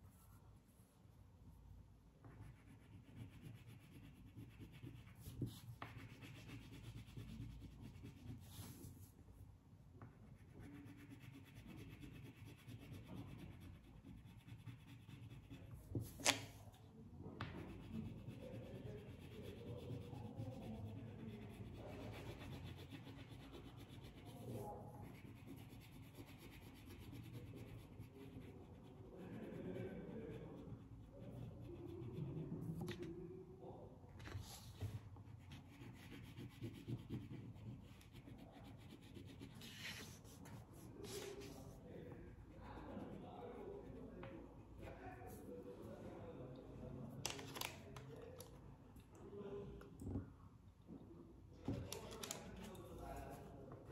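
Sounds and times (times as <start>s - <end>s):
crayon scratching on paper: 2.2s - 9.1s, 10.1s - 16.6s, 17.4s - 33.0s, 34.3s - 44.2s.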